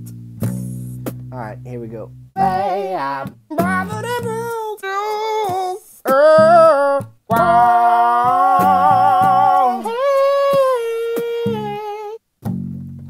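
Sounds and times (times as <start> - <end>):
strummed guitar chords: 0.0 - 4.8, 5.4 - 13.0
person singing held notes: 2.4 - 7.6, 8.2 - 12.2.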